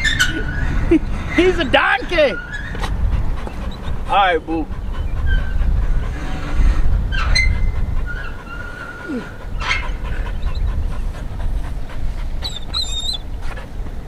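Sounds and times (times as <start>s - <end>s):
dog whining: 2.3s - 13.7s
low rumble: 2.4s - 14.0s.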